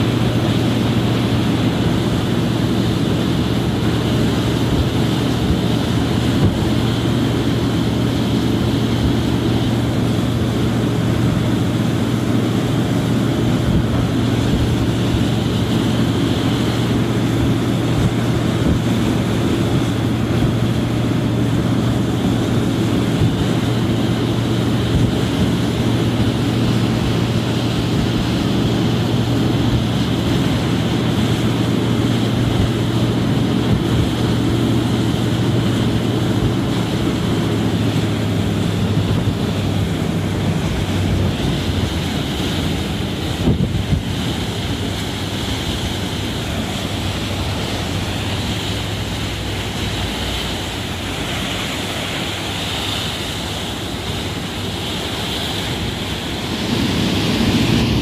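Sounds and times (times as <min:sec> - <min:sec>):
foaming water rushing: 0:00.0 - 0:58.0
low engine hum: 0:00.0 - 0:58.0
wind buffeting microphone: 0:00.0 - 0:58.0.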